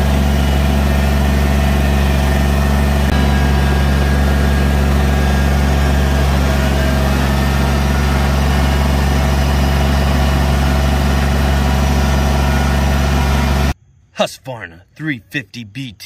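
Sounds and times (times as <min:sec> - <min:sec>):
diesel tractor engine running: 0:00.0 - 0:13.8.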